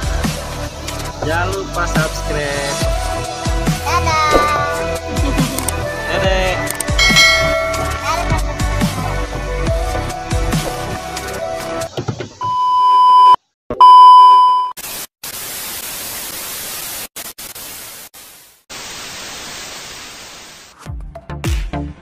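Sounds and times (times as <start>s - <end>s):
high test-tone beep: 12.4s - 14.7s
tv static hiss: 14.8s - 20.8s.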